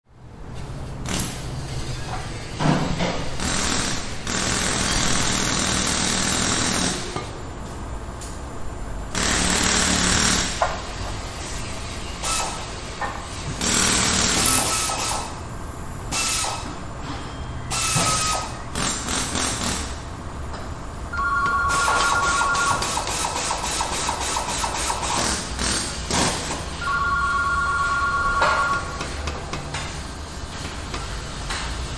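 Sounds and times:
pneumatic air tool bursts: 0:09.2 - 0:10.6, 0:12.2 - 0:12.7, 0:13.6 - 0:15.4, 0:16.1 - 0:16.7, 0:17.7 - 0:19.9, 0:22.8 - 0:26.6.

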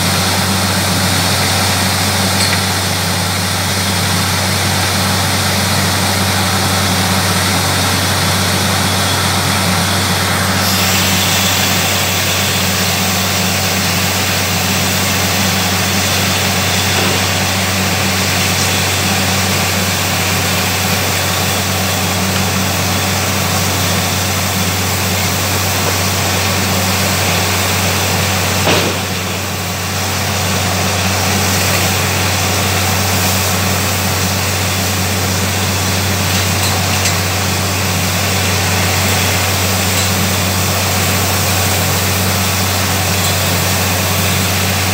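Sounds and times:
engine and compressor hum: 0:00.0 - 0:44.9
compressed air rushing: 0:27.8 - 0:30.5.

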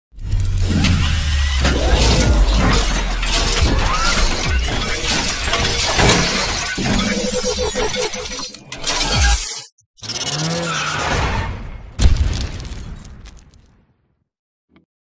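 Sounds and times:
deep bass rumble: 0:00.4 - 0:05.5
crashing and shattering: 0:01.6 - 0:07.1, 0:12.0 - 0:13.7.

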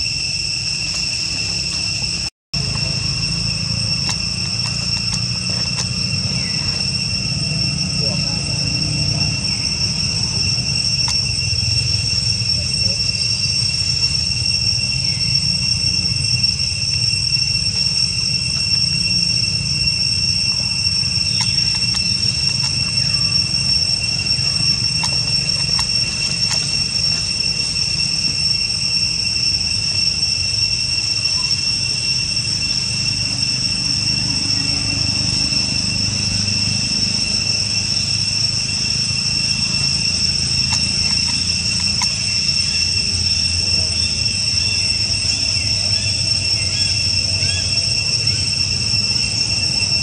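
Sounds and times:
insects droning: 0:00.0 - 0:50.0.

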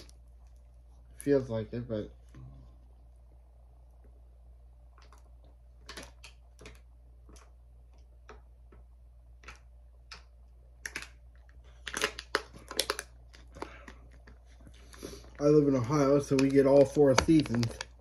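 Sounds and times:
plastic bottle crackling: 0:10.8 - 0:18.0.

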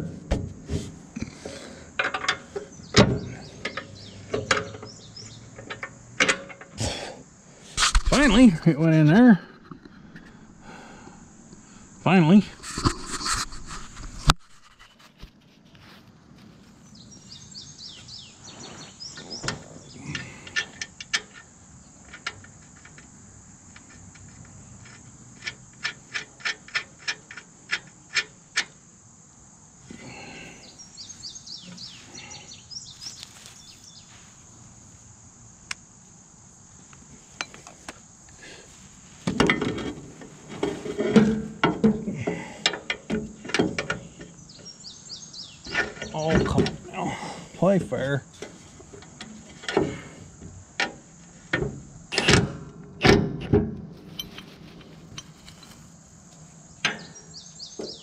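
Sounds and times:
high insect buzz: 0:16.6 - 0:52.7, 0:54.0 - 0:58.0
hand tools clicking on bolts: 0:23.8 - 0:28.8, 0:54.0 - 0:55.8
metal scraping and clattering: 0:39.2 - 0:42.1, 0:54.0 - 0:56.0.

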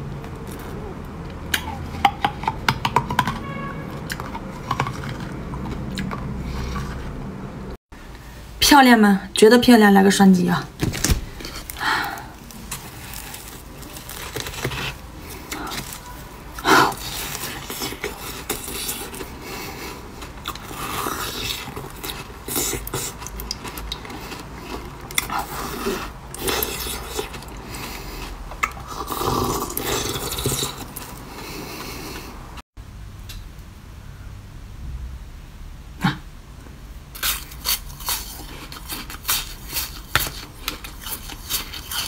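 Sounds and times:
crunching ice with teeth: 0:11.4 - 0:31.2, 0:37.2 - 0:42.0
teeth scraping on ice: 0:37.2 - 0:42.0.

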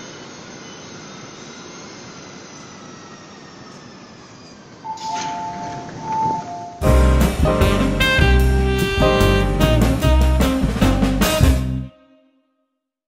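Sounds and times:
metro train rumble and hiss: 0:00.0 - 0:11.8
two-tone electronic signal: 0:04.9 - 0:06.9.

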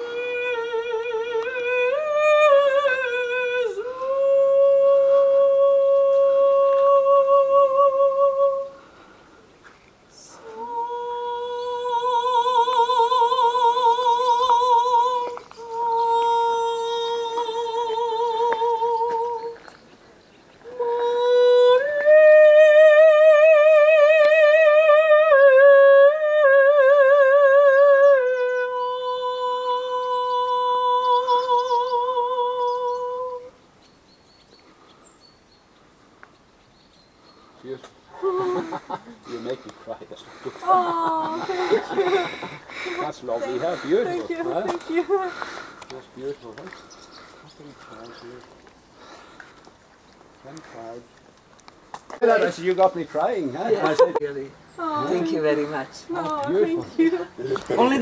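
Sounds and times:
person humming melody: 0:00.0 - 0:08.8, 0:10.2 - 0:19.6, 0:20.6 - 0:33.6, 0:38.2 - 0:39.0, 0:40.6 - 0:45.5.

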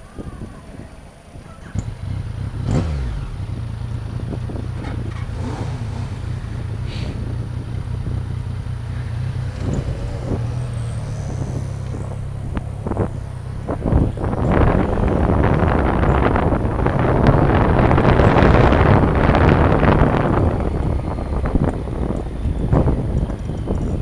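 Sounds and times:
motorcycle engine idling and revving: 0:00.0 - 0:24.0.

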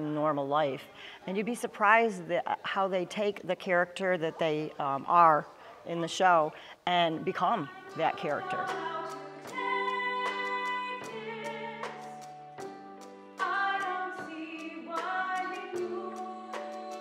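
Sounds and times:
woman singing slow melody: 0:07.0 - 0:12.3, 0:13.4 - 0:17.0.

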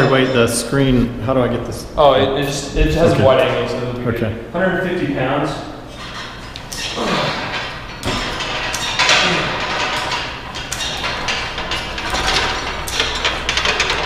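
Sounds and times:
weight stack clanking and sliding: 0:05.9 - 0:14.0.

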